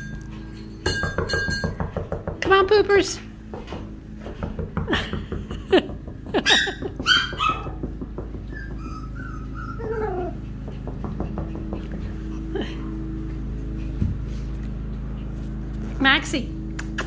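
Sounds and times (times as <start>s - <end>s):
puppies yipping: 6.3s - 12.3s
puppies whimpering: 6.4s - 7.8s, 8.5s - 13.2s.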